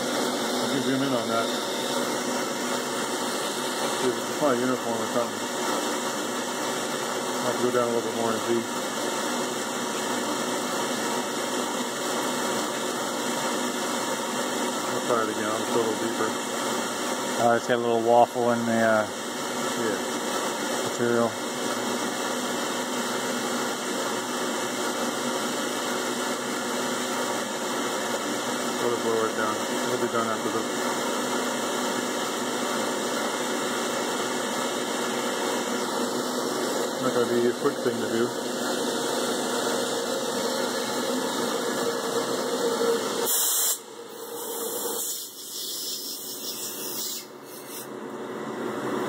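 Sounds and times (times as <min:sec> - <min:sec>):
machine hum: 0:00.0 - 0:07.4, 0:29.9 - 0:45.4
cnc spindle whirring: 0:00.0 - 0:12.1, 0:28.7 - 0:45.6
air blow gun hissing: 0:42.7 - 0:47.9.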